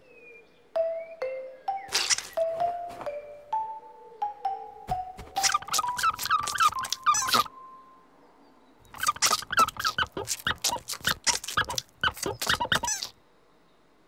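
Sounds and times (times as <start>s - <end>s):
squeaky high-pitched chirps: 1.7s - 2.6s, 5.4s - 7.6s, 8.9s - 13.1s.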